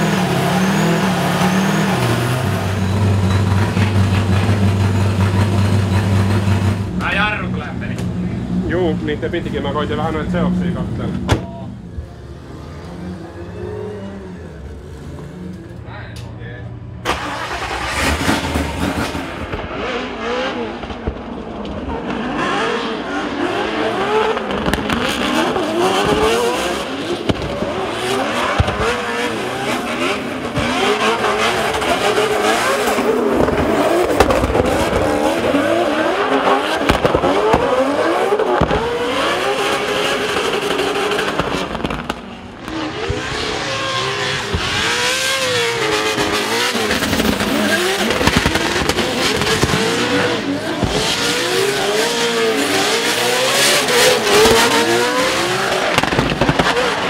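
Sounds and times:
car engine revving: 0.0s - 15.9s, 17.0s - 57.0s.

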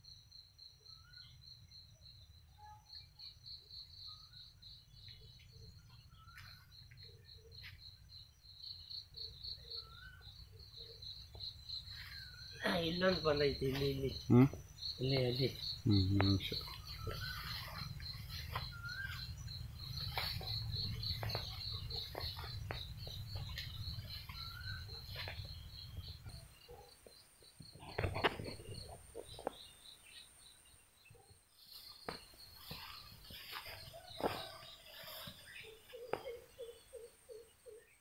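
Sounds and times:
high chirping call: 8.7s - 26.8s.

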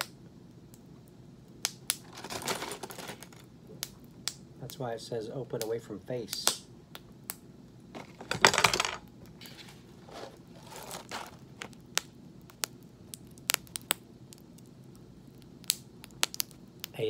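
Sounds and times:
pork rinds crackling and popping: 0.0s - 4.9s, 5.5s - 17.0s
paper bag rustling: 2.0s - 3.4s, 9.5s - 11.7s.

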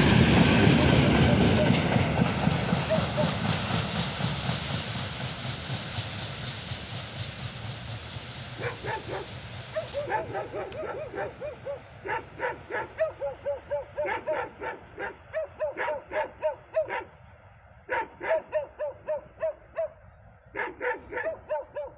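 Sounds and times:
faint train rumble: 0.0s - 21.9s
dog yapping: 8.6s - 17.1s, 17.9s - 20.0s, 20.6s - 21.9s.

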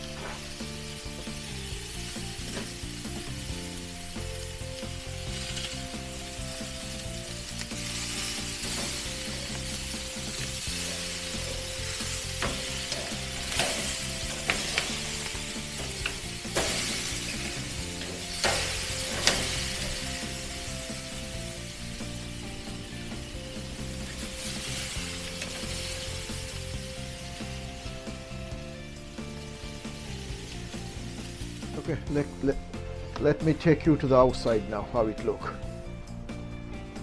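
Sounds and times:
steaks sizzling on a grill: 0.0s - 33.1s
metal tongs clicking on grates: 12.4s - 20.0s.

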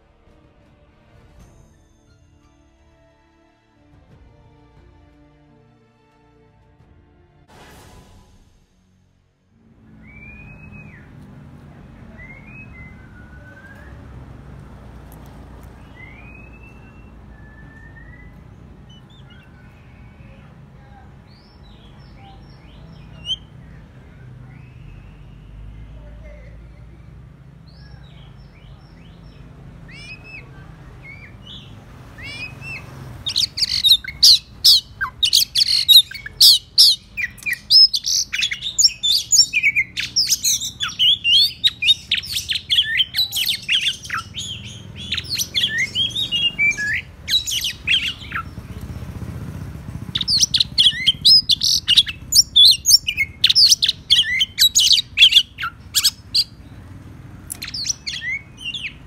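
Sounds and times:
bird singing sharp whistles: 10.0s - 11.2s, 12.1s - 14.2s, 15.8s - 20.3s, 28.5s - 48.6s, 50.1s - 56.5s, 57.5s - 59.0s
soft bird calls: 10.0s - 59.0s.

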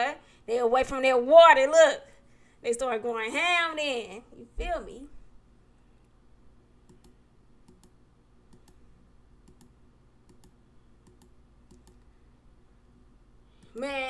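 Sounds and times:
computer mouse clicking: 6.8s - 8.8s, 9.4s - 12.1s.

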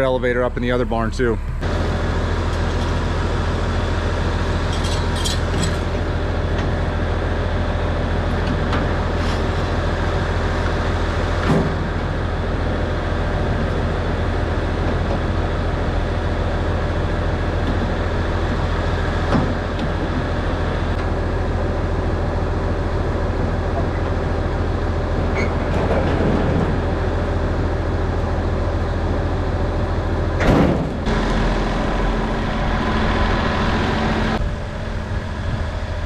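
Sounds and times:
tractor engine idling: 0.0s - 36.0s
metal clanks: 4.7s - 6.0s.

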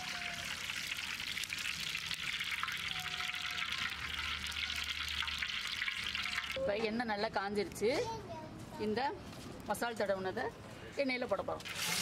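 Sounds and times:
oil pouring: 0.5s - 2.9s.

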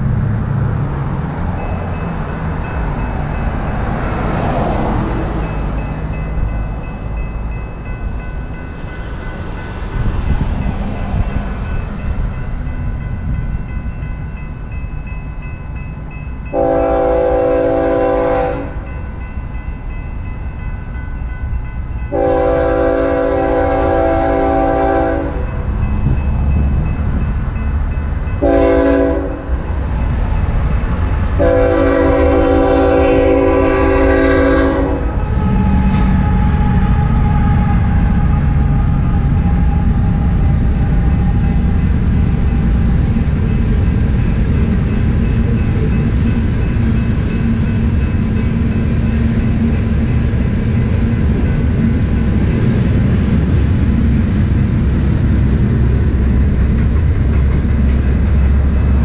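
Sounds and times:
low rumble of train: 0.0s - 59.0s
crossing bell ringing: 1.4s - 53.8s
locomotive horn blasts: 16.5s - 18.8s, 22.1s - 25.5s, 28.4s - 29.5s, 31.4s - 38.7s.

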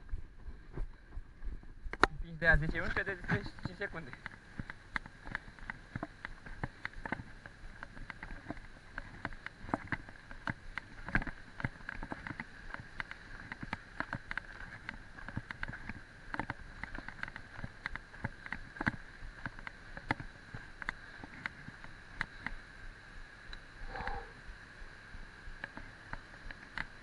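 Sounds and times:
high-pitched whir: 23.8s - 24.4s.

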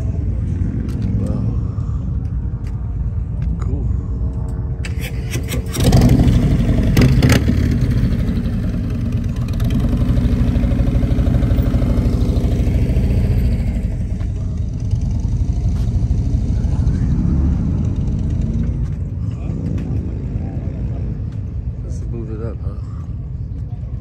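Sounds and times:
motorcycle engine revving and idling: 4.9s - 22.3s.

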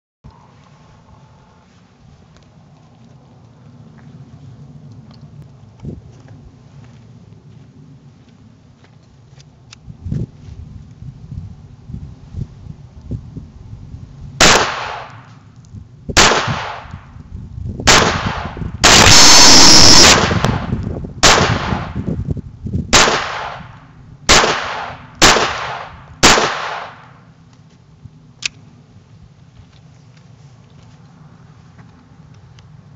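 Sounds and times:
pistol shots echoing: 24.3s - 27.1s.

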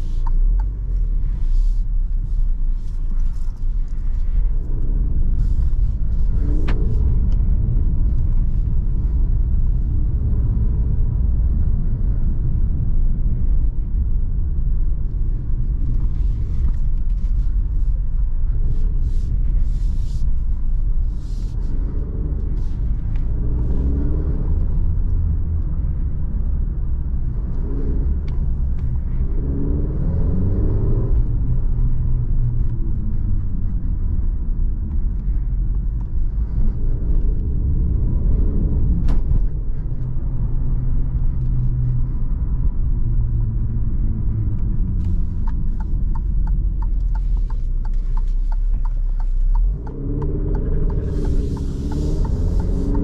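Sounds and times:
road noise rumble: 0.0s - 53.0s
car engine revving: 21.0s - 53.0s.

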